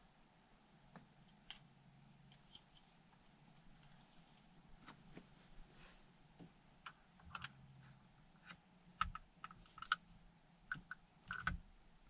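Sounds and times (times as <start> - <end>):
metal parts clicking and tapping: 10.7 - 11.6.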